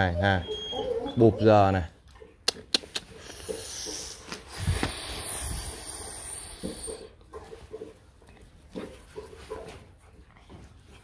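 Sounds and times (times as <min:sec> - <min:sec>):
puppy snuffling and breathing: 0:02.8 - 0:11.0.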